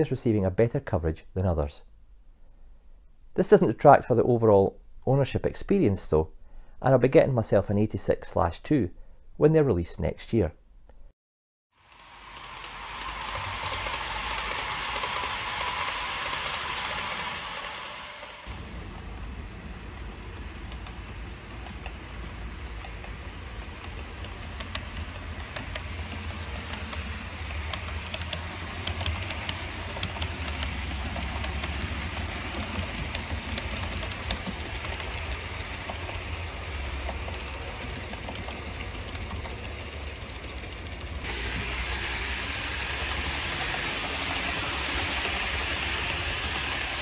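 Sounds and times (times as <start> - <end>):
model train motor hum: 11.8 - 47.0
wheels hissing on rail: 11.8 - 47.0.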